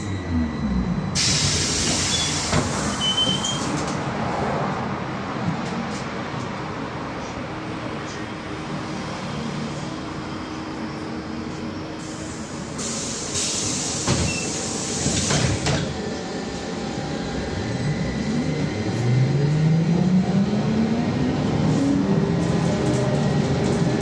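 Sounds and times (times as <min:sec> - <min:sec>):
compressed air hiss: 0:01.2 - 0:02.9, 0:12.0 - 0:15.5.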